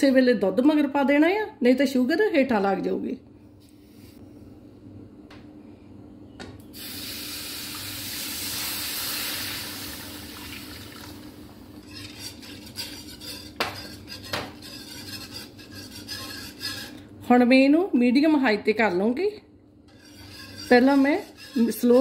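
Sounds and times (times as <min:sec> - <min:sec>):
whisk scraping against a pan: 0:11.8 - 0:17.1, 0:19.9 - 0:22.0.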